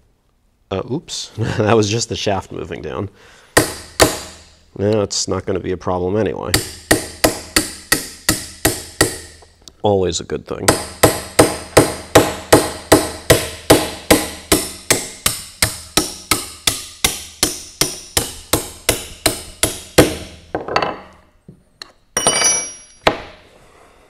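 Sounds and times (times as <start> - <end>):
metallic clatter with ringing: 22.2 - 23.0
hammer striking metal wrench: 22.2 - 23.3.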